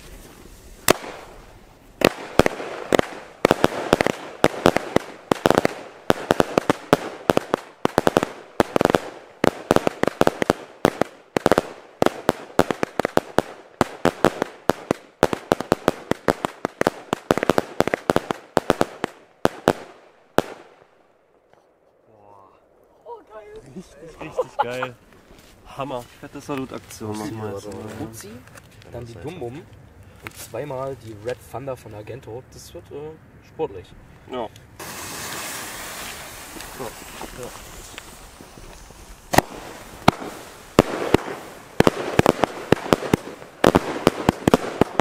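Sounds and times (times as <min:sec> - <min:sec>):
fireworks bangs with crackle: 0:00.0 - 0:20.9, 0:34.8 - 0:45.0.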